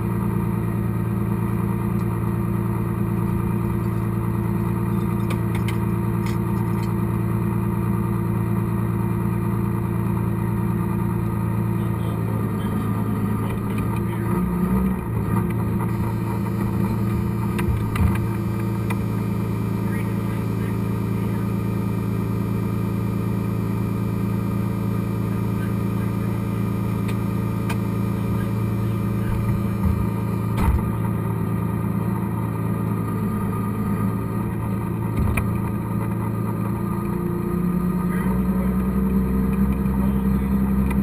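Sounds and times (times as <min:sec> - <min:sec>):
diesel engine idling: 0:00.0 - 0:41.0.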